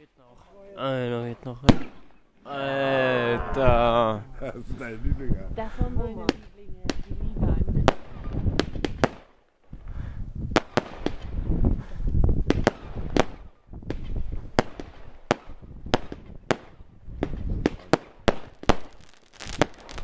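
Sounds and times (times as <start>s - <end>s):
fireworks bangs: 1.6s - 2.2s, 5.7s - 9.9s, 10.5s - 20.0s.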